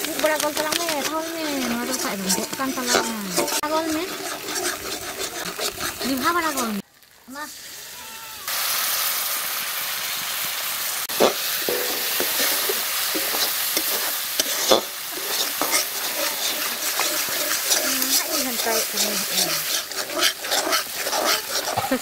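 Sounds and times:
spatula scraping a wok: 0.0s - 6.8s, 11.1s - 22.0s
paste sizzling in oil: 0.0s - 22.0s
spatula knocking against pan: 11.7s - 13.3s.

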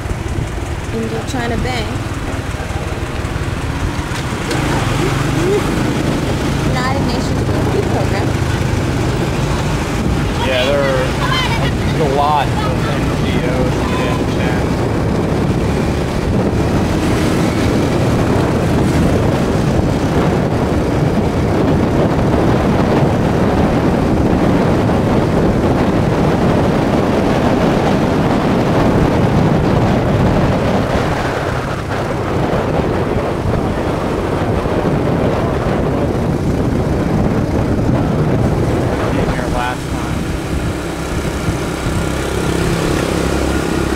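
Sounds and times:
motorcycle engine running: 0.0s - 43.9s
wind buffeting microphone: 0.0s - 43.9s.

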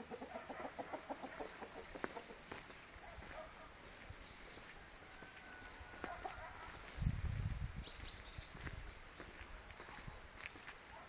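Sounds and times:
chicken clucking: 0.0s - 2.7s, 5.1s - 6.8s.

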